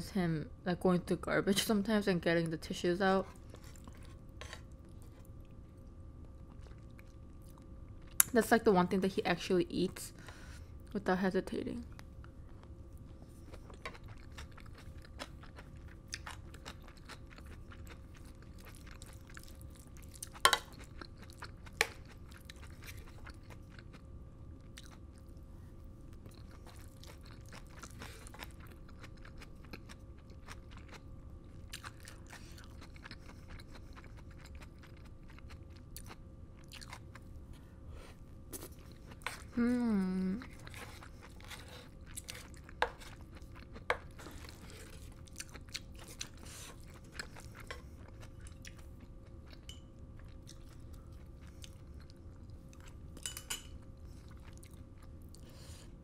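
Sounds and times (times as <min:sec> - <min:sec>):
faint steady hum: 0:00.0 - 0:56.0
close chewing with mouth clicks: 0:13.4 - 0:24.0, 0:26.1 - 0:37.3, 0:40.4 - 0:53.0, 0:54.0 - 0:55.5.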